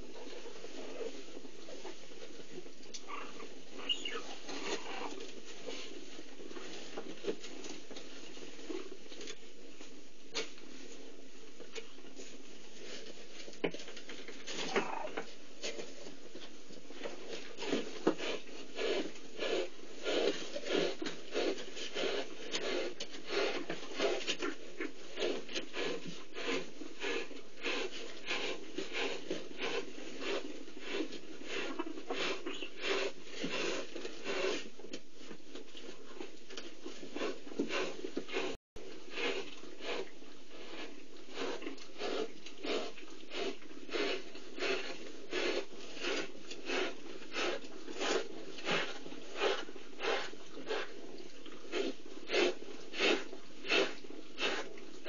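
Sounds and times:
tongue rasping while licking: 36.6 - 55.0.

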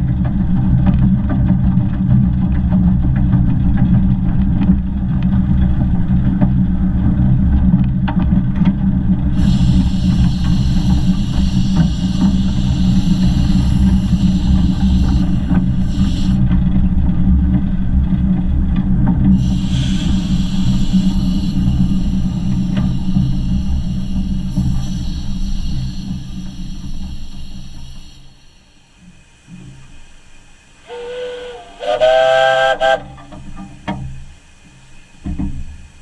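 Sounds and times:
steam locomotive wheels rumbling: 0.0 - 36.0
high steam hiss: 9.2 - 16.7, 19.3 - 36.0.

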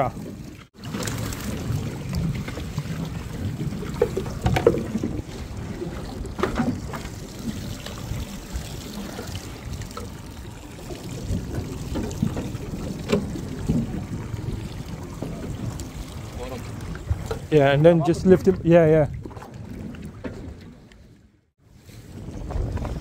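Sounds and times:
water sloshing against boat hull: 0.0 - 21.4
wind on microphone: 21.7 - 23.0.

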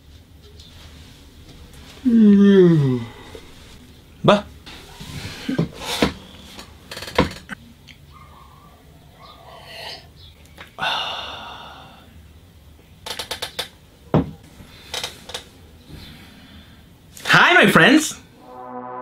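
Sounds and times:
chair knocks: 7.1 - 7.4.

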